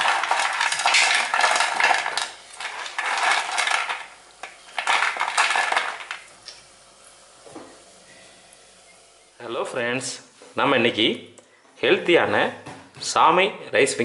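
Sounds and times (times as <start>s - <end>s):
snacks clattering on plastic plate: 0.0s - 6.3s.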